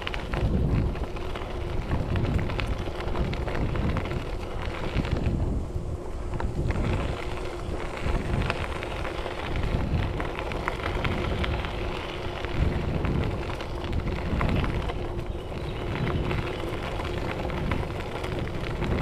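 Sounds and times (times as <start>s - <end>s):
bike tyres crunching on gravel: 0.0s - 19.0s
wind rumble on microphone: 0.0s - 19.0s.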